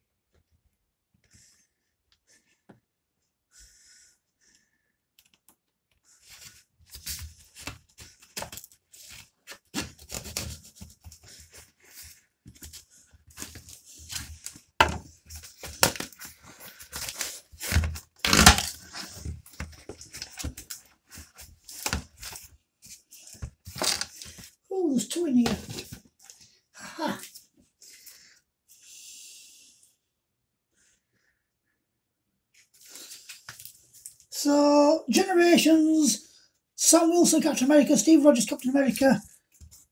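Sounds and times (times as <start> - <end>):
cardboard ripping and rustling: 7.0 - 11.0, 15.4 - 19.4, 23.6 - 24.3
knife cutting cardboard: 7.0 - 11.6, 13.3 - 20.6.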